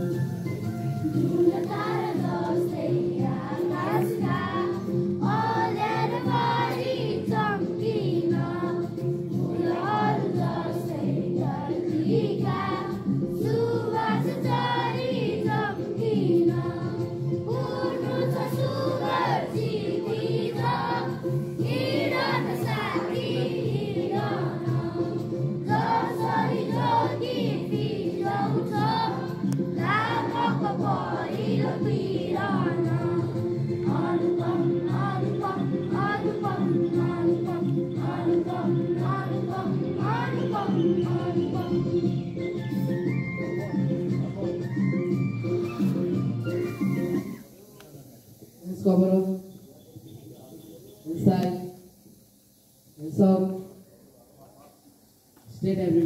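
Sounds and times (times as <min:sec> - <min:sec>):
children singing in unison: 0:01.1 - 0:42.1.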